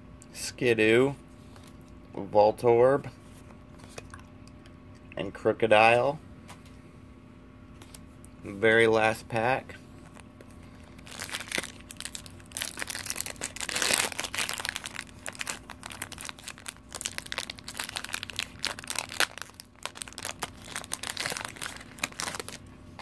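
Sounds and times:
foil wrapper tearing and crinkling: 10.8s - 22.7s.

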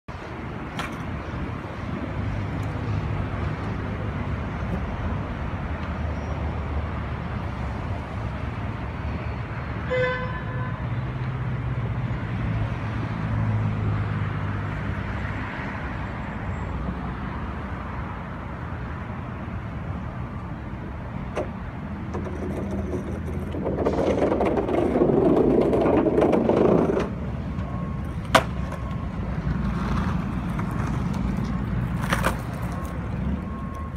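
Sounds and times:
traffic rumble: 0.1s - 33.9s
car horn toot: 9.8s - 10.8s.

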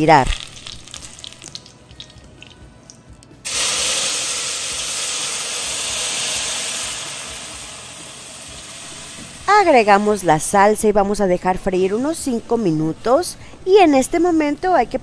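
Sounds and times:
faint oil sizzle: 3.5s - 10.3s
sauce hissing in hot oil: 3.5s - 10.5s.

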